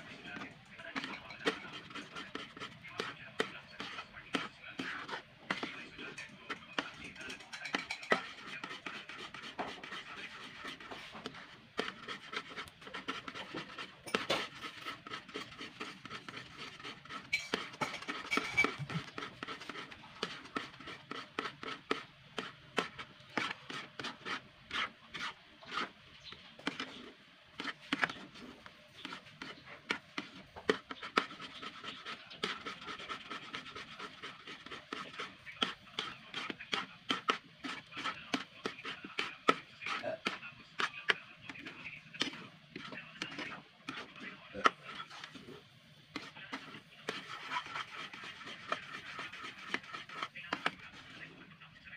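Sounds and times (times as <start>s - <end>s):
spatula scraping metal pan: 0.0s - 51.4s.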